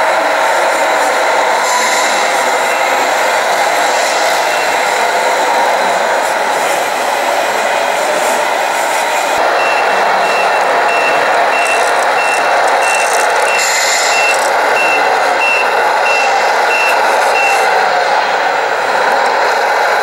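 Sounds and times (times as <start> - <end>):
reversing alarm beeps: 1.8 - 3.1, 4.4 - 4.9, 9.4 - 17.8.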